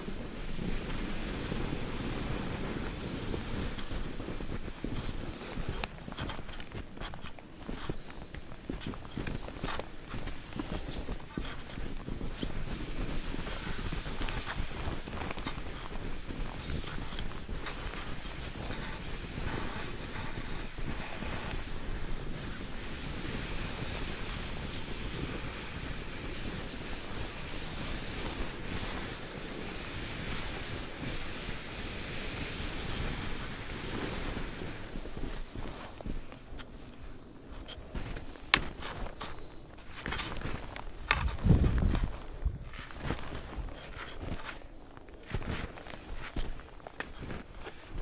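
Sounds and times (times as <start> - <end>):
skis hissing over snow: 0.0 - 48.0
wind rushing over microphone: 0.0 - 48.0.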